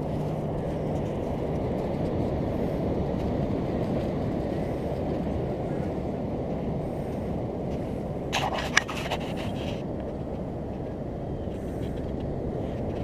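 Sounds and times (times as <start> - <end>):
wind: 0.0 - 13.0
sharp scraping clicks: 8.3 - 9.8.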